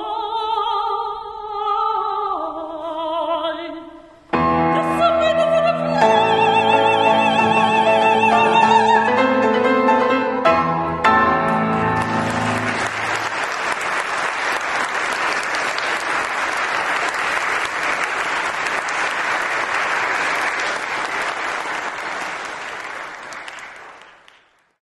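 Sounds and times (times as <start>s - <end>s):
piano chord: 4.4s - 13.3s
audience applauding: 11.7s - 24.8s.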